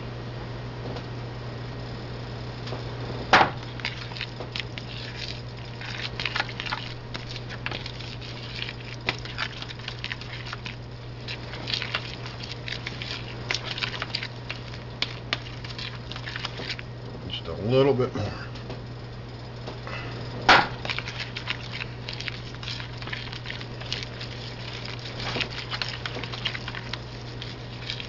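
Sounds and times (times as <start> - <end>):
steady low hum: 0.0 - 28.0
spoon stirring batter in a bowl: 3.6 - 18.0, 20.7 - 28.0.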